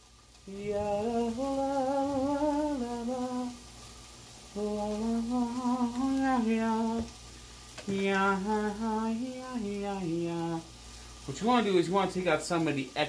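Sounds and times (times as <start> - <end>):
man humming: 0.5 - 3.6, 7.9 - 10.7.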